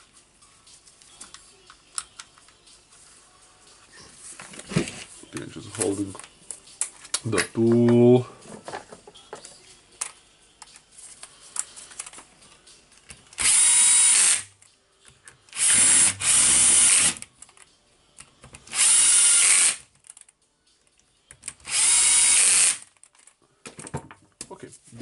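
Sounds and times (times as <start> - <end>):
cordless drill motor whine: 15.6 - 17.2, 18.7 - 19.8, 21.7 - 22.8.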